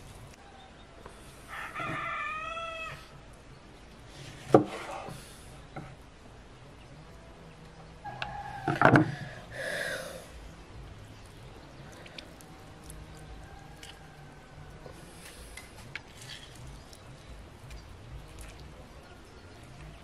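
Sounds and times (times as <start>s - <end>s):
juice dripping: 9.2s - 20.0s
wet squish of squeezed lemon: 11.2s - 20.0s.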